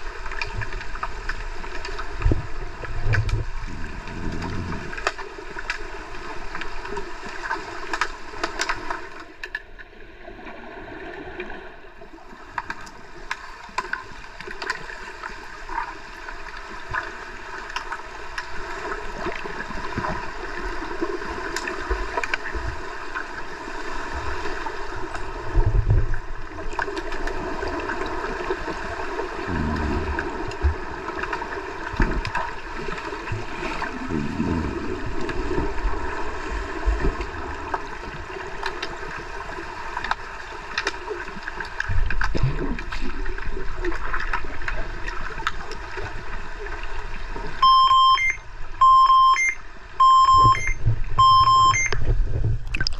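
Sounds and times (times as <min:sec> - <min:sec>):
sharp underwater clicks and knocks: 0:00.2 - 0:05.8, 0:07.8 - 0:09.8, 0:41.7 - 0:43.2, 0:51.8 - 0:52.9
dull underwater thumps: 0:50.2 - 0:52.9.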